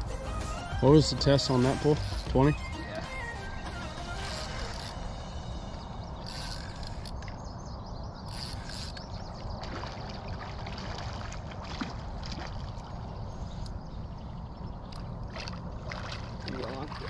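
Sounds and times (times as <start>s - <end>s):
steady low rumble: 4.7s - 8.3s
water splashing and sloshing: 8.4s - 17.0s
person wading: 9.6s - 13.3s, 15.3s - 17.0s.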